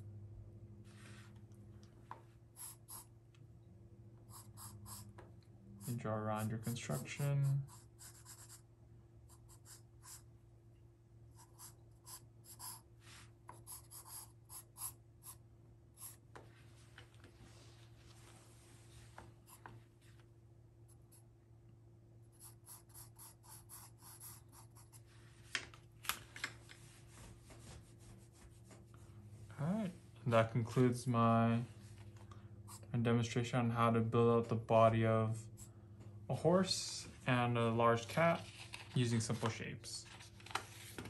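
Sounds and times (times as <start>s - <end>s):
faint low hum: 0.0s - 41.0s
pencil drawing on paper: 4.3s - 5.1s, 5.8s - 8.6s, 11.4s - 12.8s, 13.5s - 15.4s, 22.3s - 25.0s.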